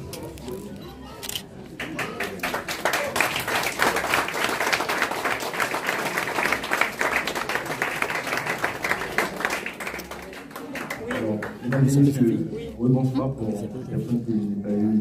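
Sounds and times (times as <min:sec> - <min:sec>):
people applauding: 0:01.7 - 0:12.2.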